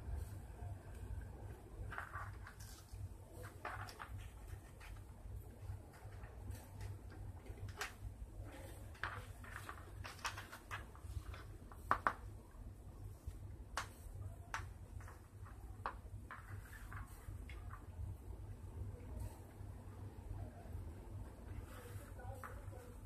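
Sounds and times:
steady low hum: 0.0 - 23.0
paper rustling and tapping: 1.8 - 12.4, 13.7 - 17.9.

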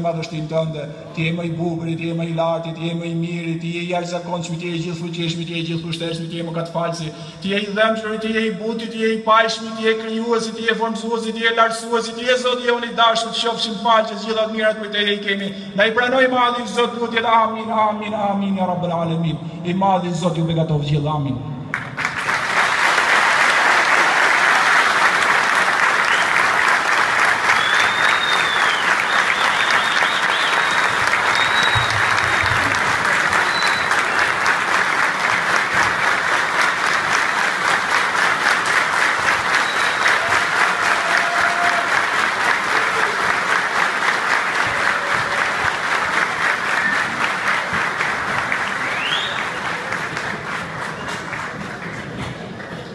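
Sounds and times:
crowd applauding: 21.7 - 52.9.

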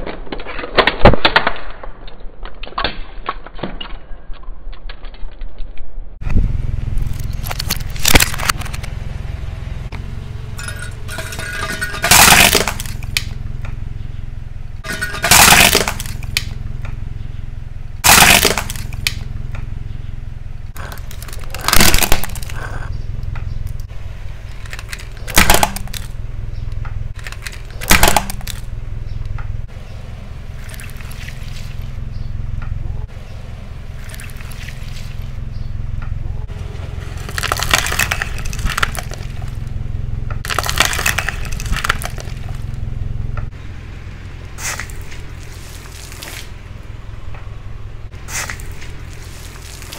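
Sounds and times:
low rumble: 5.8 - 49.9
plastic and glass crunching under tyre: 7.0 - 9.0, 10.6 - 14.1, 14.8 - 17.3, 18.0 - 19.7, 20.7 - 29.4, 30.5 - 32.3, 34.0 - 35.7, 36.5 - 42.9, 44.5 - 46.6, 48.1 - 49.9.

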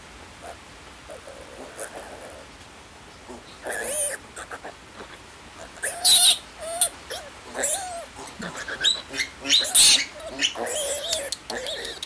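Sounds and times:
piglet squealing: 5.8 - 12.0.

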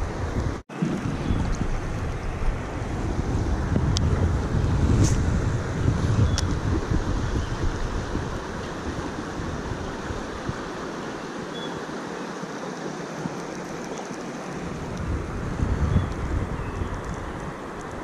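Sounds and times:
wind buffeting microphone: 0.0 - 11.9, 13.2 - 18.0
fast-flowing river rushing: 6.6 - 18.0.

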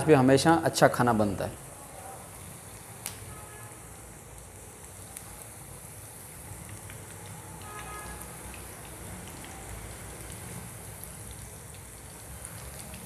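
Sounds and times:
food deep-frying in oil: 0.0 - 13.0
oil popping and crackling: 2.6 - 13.0.

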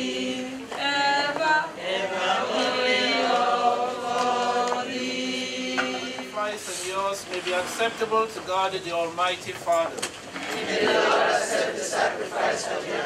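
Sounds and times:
choir singing a hymn: 0.0 - 6.9, 10.4 - 13.0.

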